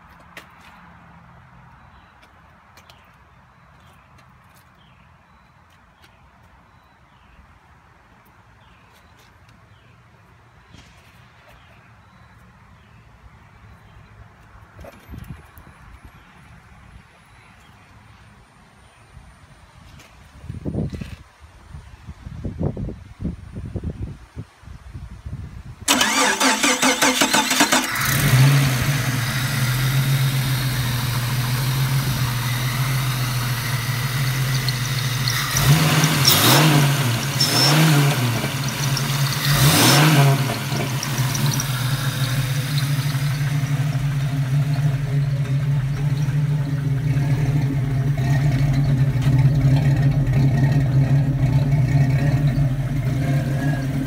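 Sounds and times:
engine cranking on starter: 25.9s - 30.4s, 33.6s - 54.0s
engine idling and revving: 25.9s - 54.0s.

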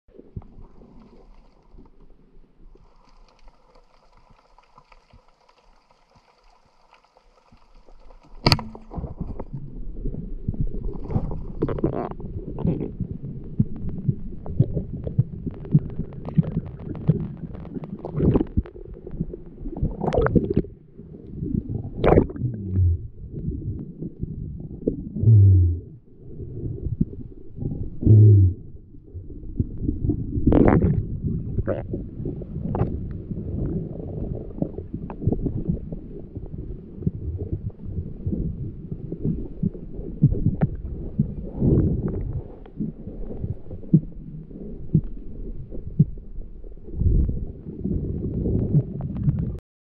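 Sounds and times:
water splashing: 0.1s - 22.9s
low water gurgle: 0.1s - 49.6s
small underwater clicks and knocks: 0.2s - 22.4s, 32.6s - 33.8s, 39.1s - 49.6s.

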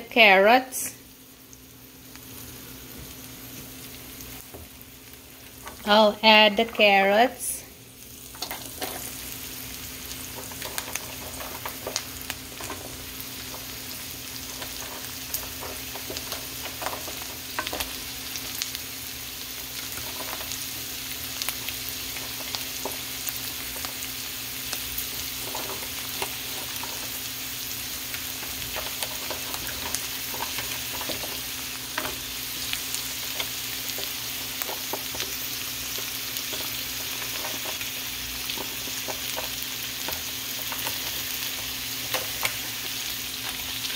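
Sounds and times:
vegetables sizzling in a wok: 0.0s - 43.9s
spatula scraping and clicking: 28.4s - 32.7s.

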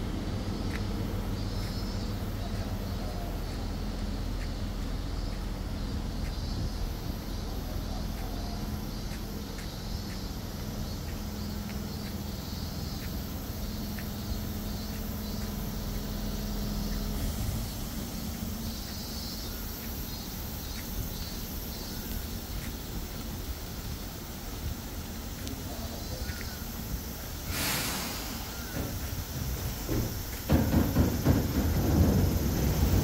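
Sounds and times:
truck engine running: 0.0s - 21.6s
insects chirping: 0.0s - 33.0s.

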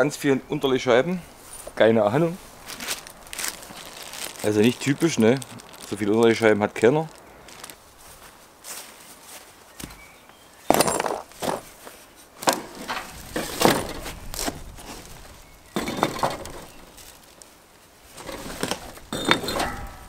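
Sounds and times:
bricks clunking: 12.4s - 15.1s, 15.7s - 17.0s, 18.2s - 20.0s.

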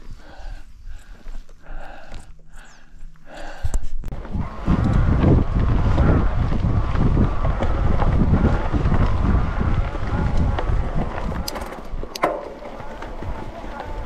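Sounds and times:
wind buffeting microphone: 3.6s - 14.0s.

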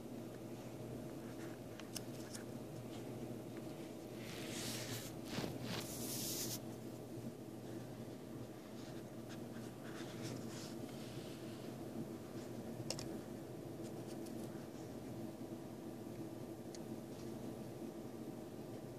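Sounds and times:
paper rustling and scraping: 4.2s - 6.6s
paper scratching on desk: 4.3s - 6.6s.

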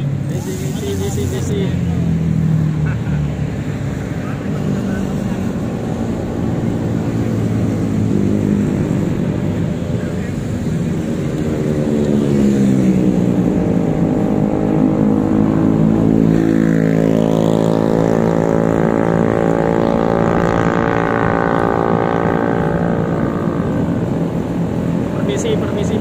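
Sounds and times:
vehicle engine running: 0.0s - 26.0s.

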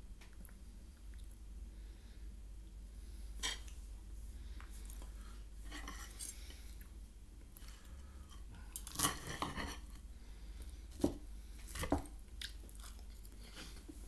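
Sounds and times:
cutlery scraping and clinking on a plate: 5.7s - 6.4s, 8.3s - 10.0s.

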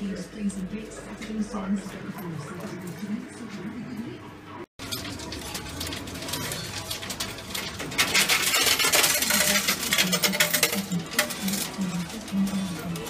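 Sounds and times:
coins clattering in arcade machine: 4.8s - 13.0s.

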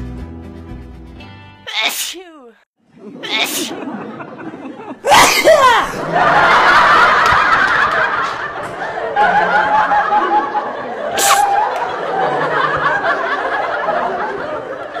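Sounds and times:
people laughing: 2.9s - 15.0s
brief sharp high sound: 11.2s - 11.6s.

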